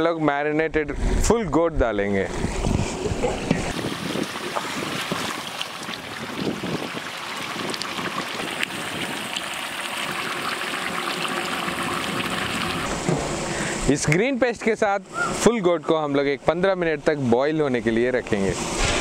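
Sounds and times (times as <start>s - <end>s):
sauce bubbling in a pot: 3.7s - 12.9s.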